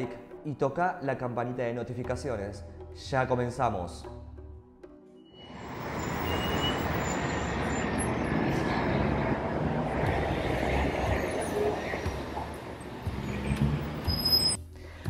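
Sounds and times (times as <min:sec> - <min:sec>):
city street traffic: 0:05.2 - 0:14.6.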